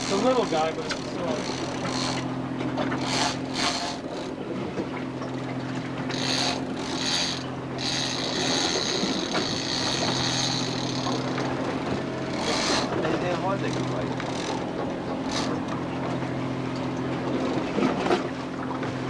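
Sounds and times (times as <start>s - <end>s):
boat engine hum: 0.0s - 19.0s
fishing reel ratchet clicking: 3.0s - 4.2s, 6.1s - 11.2s, 12.3s - 13.0s.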